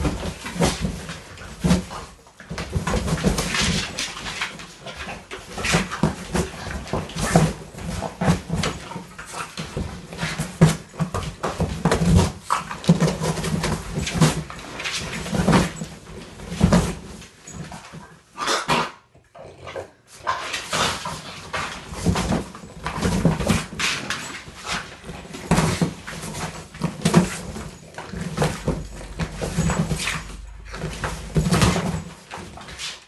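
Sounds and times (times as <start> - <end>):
dog growling: 18.5 - 20.1.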